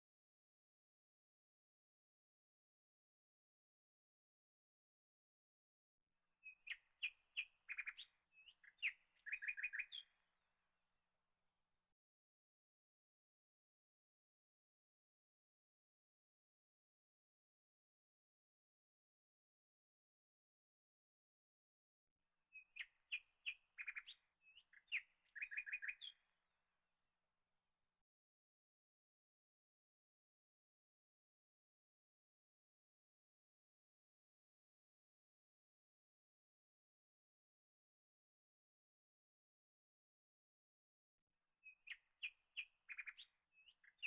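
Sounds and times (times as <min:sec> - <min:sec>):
songbird chirping and trilling: 0:06.4 - 0:10.3, 0:22.5 - 0:26.4, 0:41.6 - 0:44.0.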